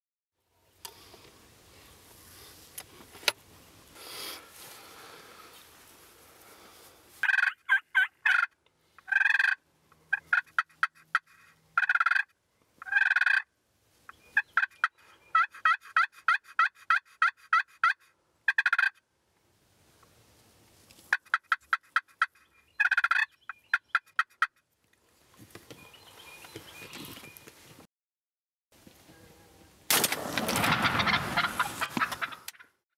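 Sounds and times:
turkeys gobbling: 7.2 - 13.5, 14.1 - 19.0, 21.1 - 24.6, 30.4 - 32.8.

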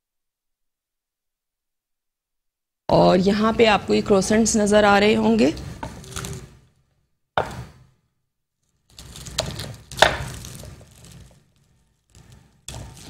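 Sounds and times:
plastic bag rustling and crinkling: 8.8 - 13.0.

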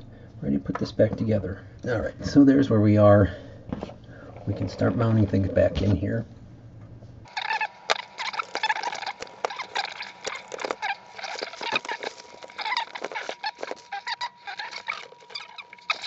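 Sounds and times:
plastic bag crinkling: 7.3 - 16.0.

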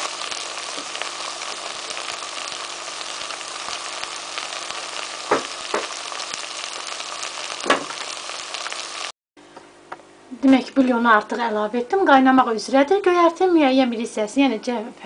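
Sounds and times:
vegetables sizzling in a pot: 0.0 - 9.2.

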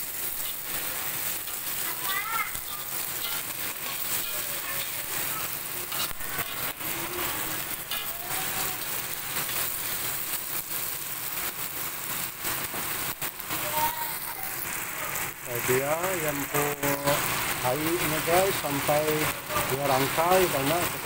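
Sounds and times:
snails sizzling in hot oil: 0.0 - 21.0
metal spatula scraping a wok: 2.5 - 10.0.

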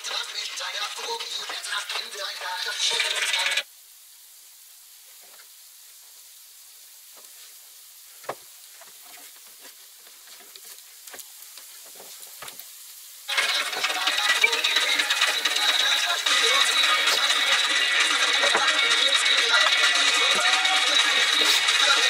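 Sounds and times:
faint steady hiss: 0.0 - 22.0
loud background music: 13.3 - 22.0.

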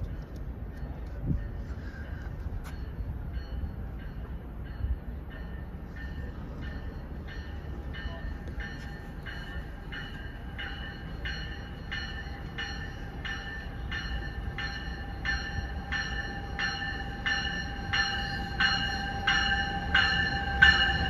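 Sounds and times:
train whine and low rumble: 0.0 - 21.0
train bell ringing: 0.1 - 21.0.

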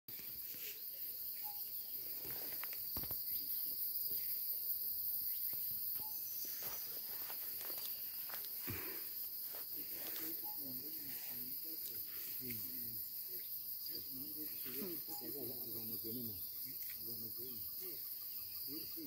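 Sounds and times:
high-pitched insect chorus: 0.1 - 19.0.

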